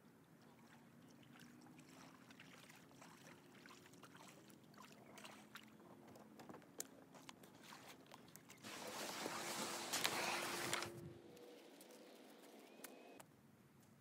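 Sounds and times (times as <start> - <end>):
paddle splashing in water: 0.4 - 5.8, 7.5 - 10.9.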